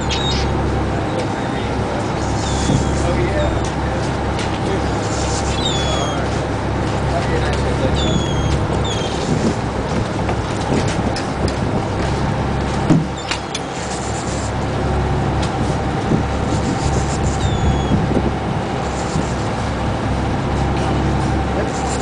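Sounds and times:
seabird crying: 0:00.0 - 0:00.6, 0:02.1 - 0:03.6, 0:04.9 - 0:06.4, 0:07.9 - 0:09.4, 0:13.1 - 0:14.6, 0:16.5 - 0:18.1
boat engine humming: 0:00.0 - 0:22.0.

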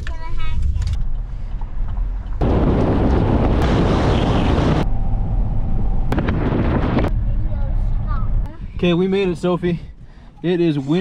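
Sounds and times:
car road and wind rumble: 0:00.0 - 0:09.6
loud rush of wind: 0:02.4 - 0:08.8.

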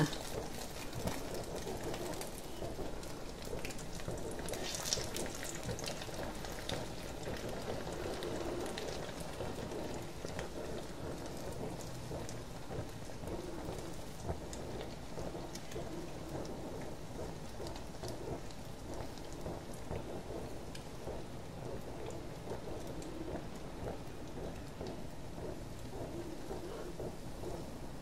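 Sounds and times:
oil spooned over food: 0:00.1 - 0:10.5
oil sizzling in a pan: 0:00.1 - 0:15.7.

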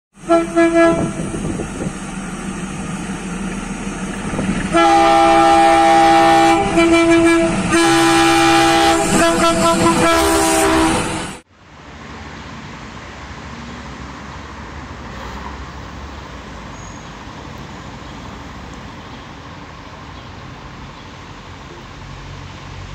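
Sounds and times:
background traffic noise: 0:00.1 - 0:22.9
locomotive engine rumble: 0:00.1 - 0:22.9
locomotive horn blasts: 0:00.2 - 0:01.6, 0:04.2 - 0:11.4.

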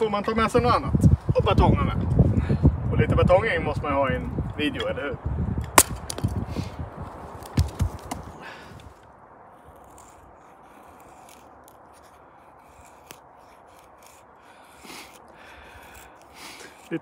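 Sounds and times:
knife scraping wood: 0:09.6 - 0:17.0.

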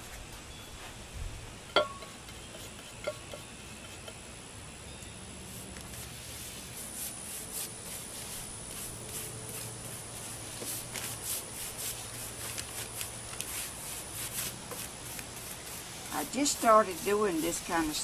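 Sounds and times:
paintbrush scratchy strokes: 0:05.4 - 0:18.0.

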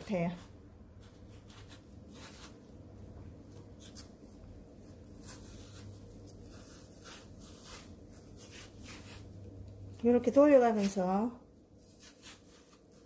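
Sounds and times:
low steady hum: 0:00.0 - 0:13.0
knife scraping gourd: 0:00.1 - 0:02.7, 0:04.9 - 0:09.4, 0:11.8 - 0:13.0.

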